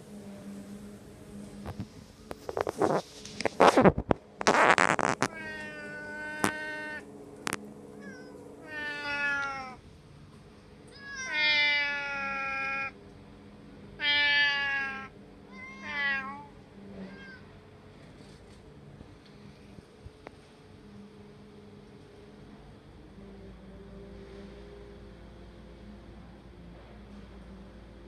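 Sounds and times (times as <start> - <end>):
cat meowing hoarsely: 4.7 - 7.1, 7.9 - 9.8, 10.9 - 13.0, 14.0 - 17.5.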